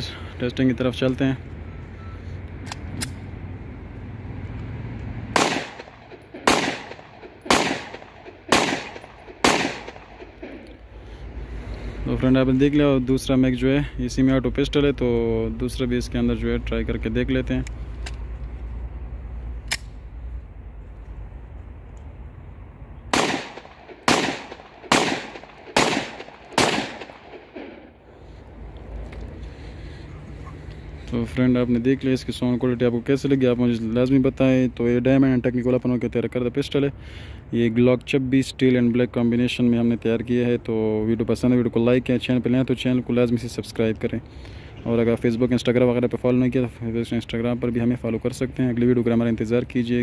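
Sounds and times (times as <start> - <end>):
pistol shots: 5.3 - 10.7, 23.1 - 27.9.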